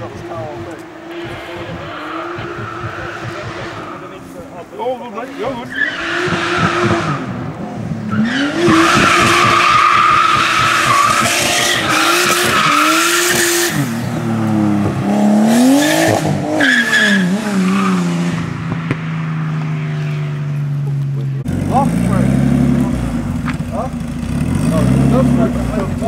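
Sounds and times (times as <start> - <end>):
car engine revving: 0.0 - 26.0
tyres squealing: 0.8 - 7.3, 8.1 - 13.9.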